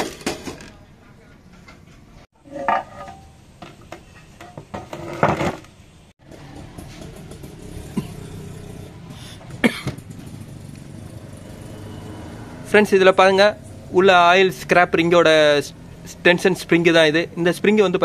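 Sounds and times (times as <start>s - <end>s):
clicks and knocks on engine parts: 9.4s - 10.4s.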